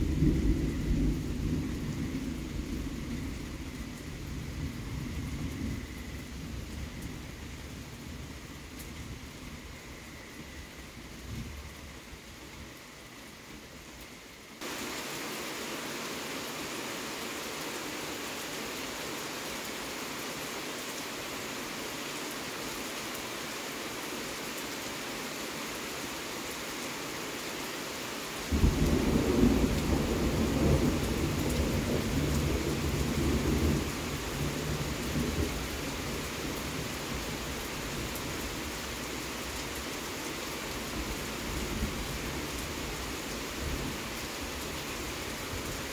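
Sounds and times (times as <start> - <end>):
rain hissing: 0.0 - 45.9
thunderclap rumbling: 28.5 - 35.6.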